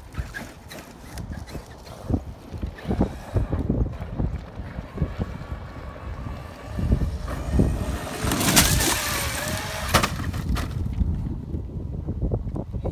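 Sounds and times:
wind rumbling on microphone: 0.0 - 12.9
rc truck electric motor whining: 0.2 - 10.4.

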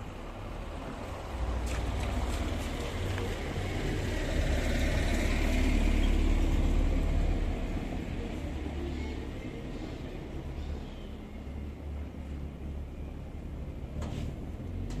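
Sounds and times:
motor vehicle rumbling: 0.0 - 15.0.

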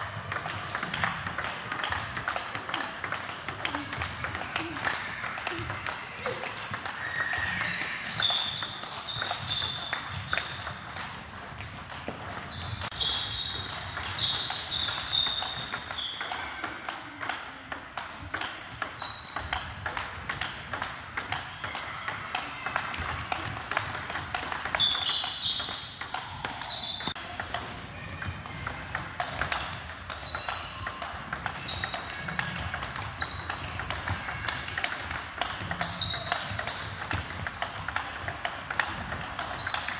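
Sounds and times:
table tennis ball clicks: 0.2 - 39.9.

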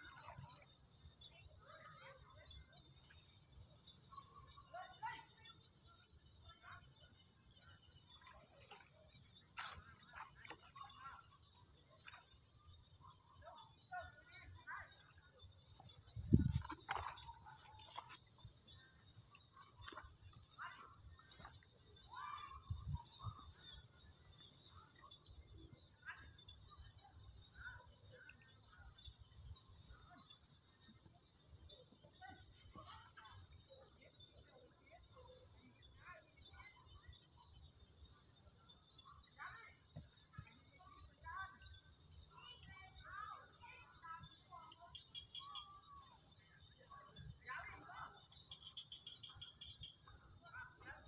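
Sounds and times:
crickets chorus: 0.0 - 51.0.

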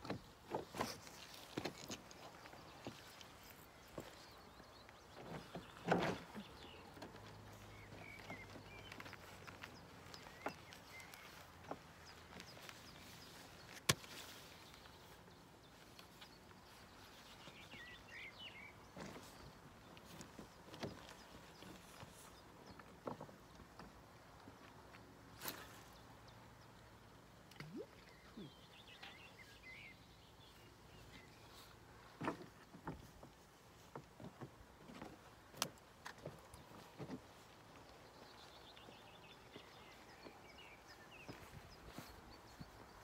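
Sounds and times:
footsteps on rocks: 34.0 - 43.0.

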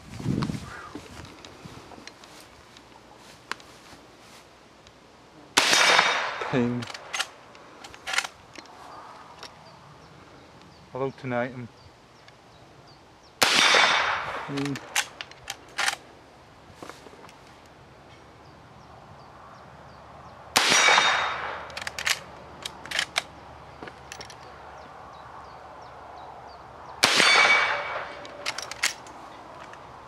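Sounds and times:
rifle shots echoing: 5.6 - 7.3, 13.4 - 15.2, 20.6 - 22.3, 27.0 - 29.0.

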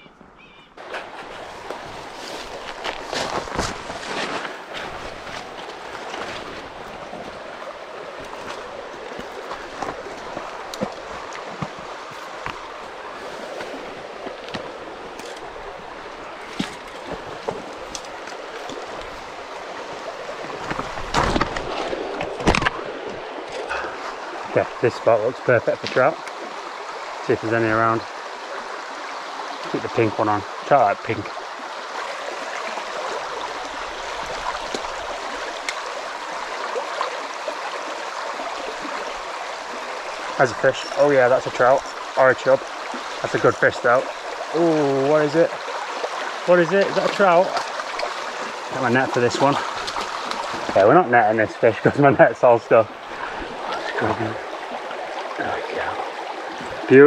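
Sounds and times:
shallow stream running: 0.0 - 57.0
brushing through undergrowth: 0.8 - 6.8
footsteps in grass: 0.8 - 6.8.

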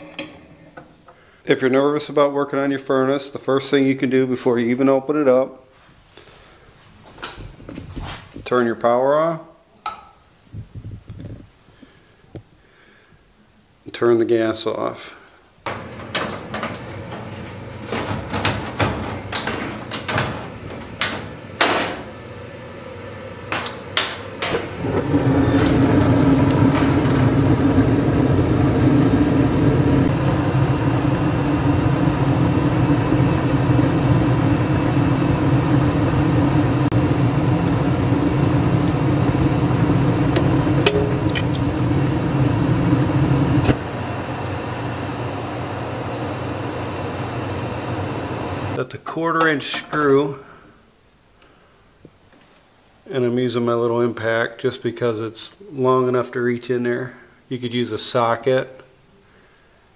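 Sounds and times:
machine hum: 15.6 - 48.8.

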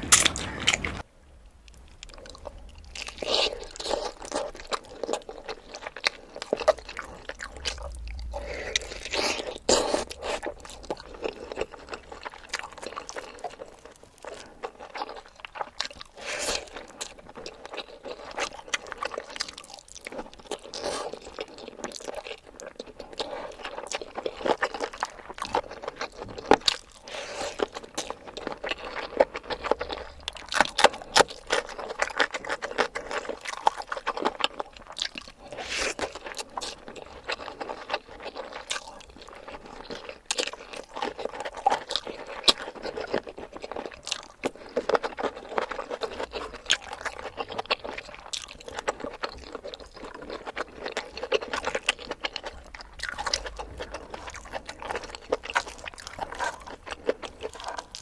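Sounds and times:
chewing and crunching food: 0.0 - 58.0.

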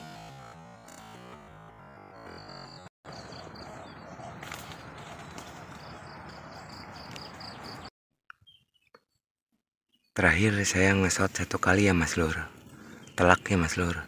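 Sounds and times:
high pulsing animal call: 2.2 - 5.3.

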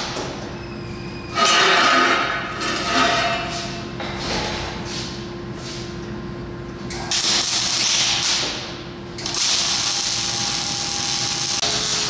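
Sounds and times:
welding arc crackling and hissing: 7.1 - 8.6, 9.2 - 12.0.

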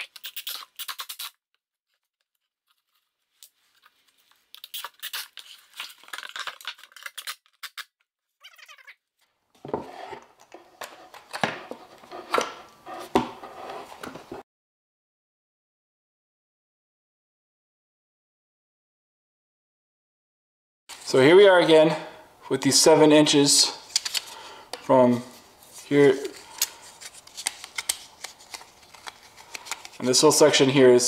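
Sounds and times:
board knocking and scraping: 9.6 - 14.4.

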